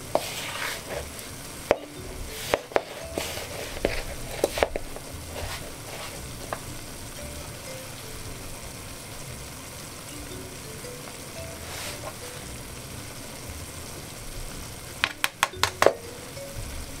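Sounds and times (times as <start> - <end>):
spoon mixing meat in bowl: 0.1 - 1.1, 1.7 - 6.2
wooden spoon scraping plastic bowl: 0.1 - 6.2.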